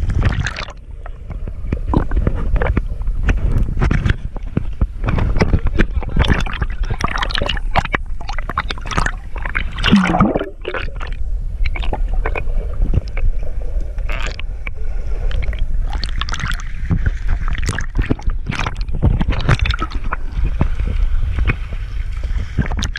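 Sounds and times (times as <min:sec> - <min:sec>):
underwater gurgling: 0:00.0 - 0:22.9
water splashing and sloshing: 0:00.0 - 0:22.9
low rumble: 0:09.2 - 0:22.8.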